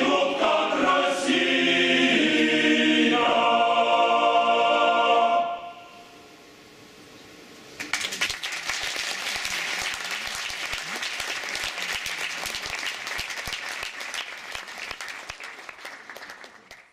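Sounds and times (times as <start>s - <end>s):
audience applause: 7.8s - 16.9s.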